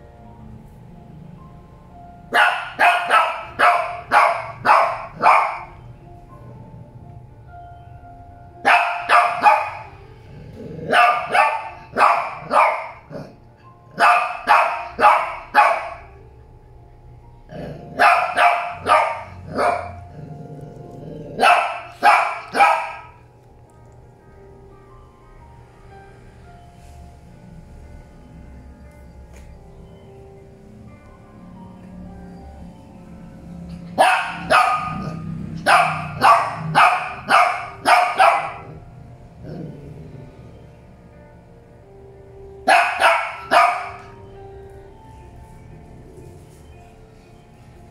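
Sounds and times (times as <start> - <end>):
dog barking: 2.3 - 5.8, 8.6 - 9.9, 10.9 - 13.4, 14.0 - 16.0, 17.9 - 20.0, 21.4 - 23.2, 34.0 - 38.8, 42.6 - 44.2.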